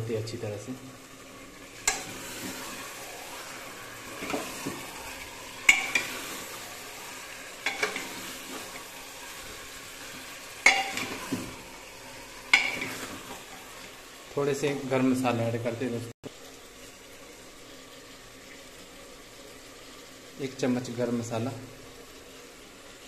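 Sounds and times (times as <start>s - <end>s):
curry sizzling in a pot: 0.0s - 23.0s.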